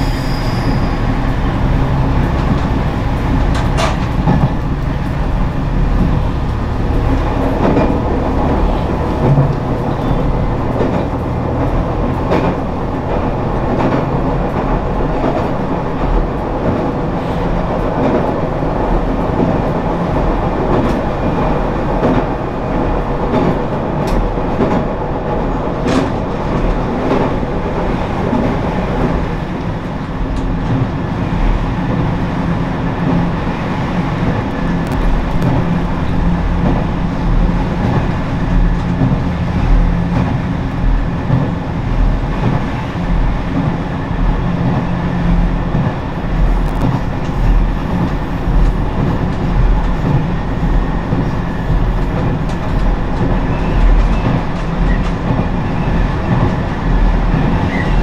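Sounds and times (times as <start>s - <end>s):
train rumbling on rails: 0.0s - 58.0s.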